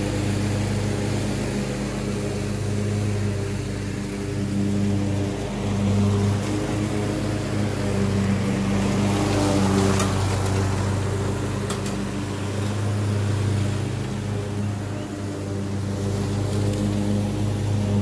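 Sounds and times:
lawn mower engine running: 0:00.0 - 0:18.0.

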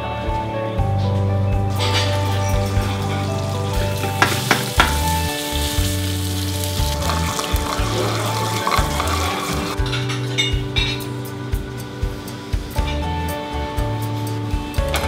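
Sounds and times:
soft background music: 0:00.0 - 0:15.0
food sizzling in frying pans: 0:01.7 - 0:10.4.

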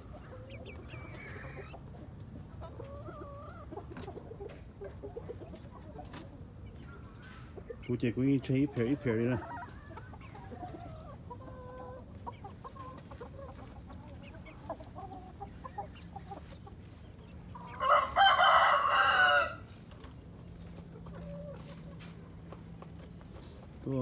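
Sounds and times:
chickens clucking: 0:00.0 - 0:24.0
rooster crowing: 0:17.8 - 0:19.7.

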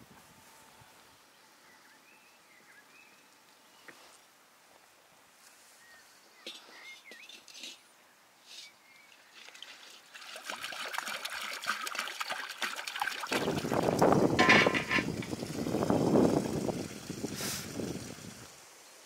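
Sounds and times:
water pouring into metal cauldron: 0:09.4 - 0:18.6.

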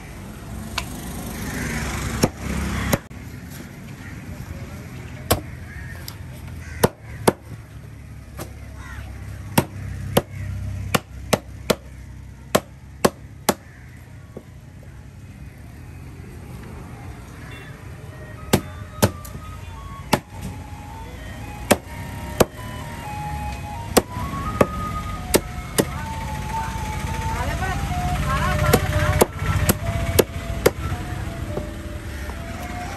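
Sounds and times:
simple tune playing faintly: 0:18.0 - 0:32.9.

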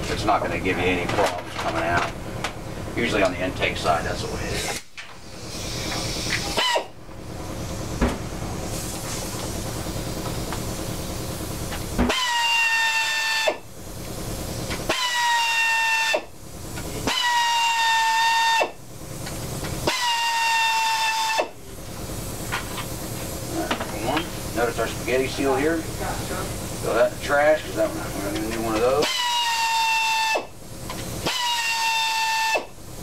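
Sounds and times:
air tool high whine: 0:02.0 - 0:33.0
air tool hissing: 0:04.2 - 0:33.0.

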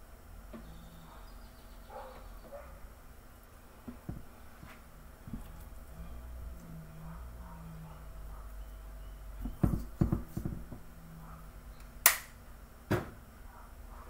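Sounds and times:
plastic bottles knocking: 0:09.4 - 0:10.9
sharp plastic clicks: 0:11.8 - 0:12.3.

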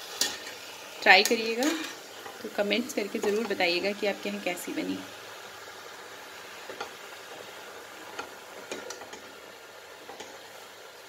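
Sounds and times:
hiss of curry cooking: 0:00.0 - 0:11.0.

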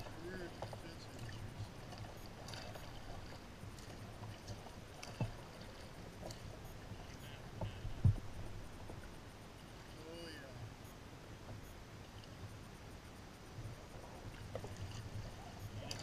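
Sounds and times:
paddle knocking against kayak: 0:00.0 - 0:09.1, 0:13.9 - 0:16.0
paddle splashing in water: 0:00.0 - 0:09.2, 0:13.6 - 0:16.0.

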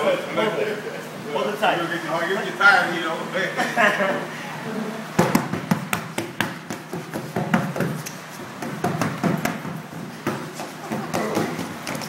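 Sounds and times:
hands smacking exercise ball: 0:05.2 - 0:12.0.

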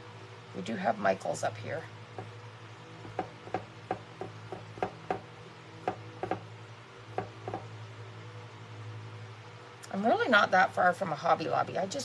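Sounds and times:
steady low hum: 0:00.0 - 0:12.0
pen tapping on metal tray: 0:05.8 - 0:06.4, 0:07.2 - 0:07.6.

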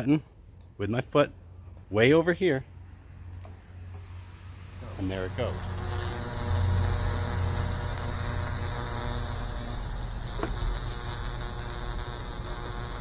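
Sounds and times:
transformer electrical hum: 0:01.3 - 0:13.0
sharp electrical snap: 0:04.0 - 0:13.0.

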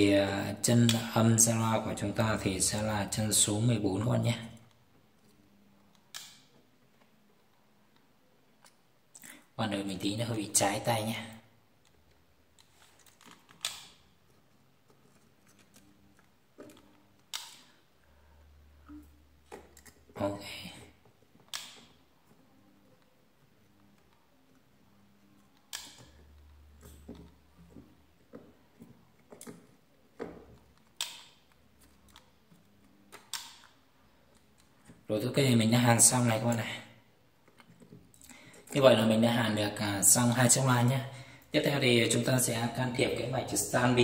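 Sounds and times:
small sharp clicks and taps: 0:15.5 - 0:17.8.

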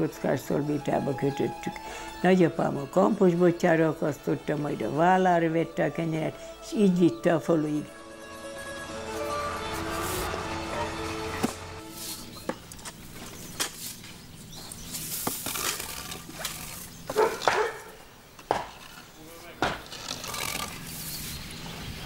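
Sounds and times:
wooden pole scraping and knocking: 0:09.8 - 0:14.0, 0:14.9 - 0:17.7, 0:18.4 - 0:21.0.

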